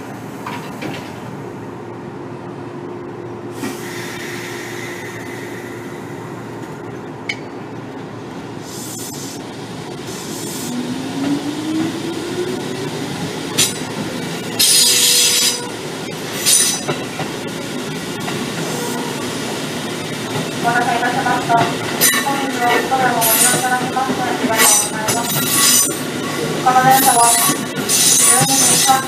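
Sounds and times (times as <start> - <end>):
train running noise: 0.0 - 29.0
train air hisses: 3.5 - 6.6, 8.6 - 9.5.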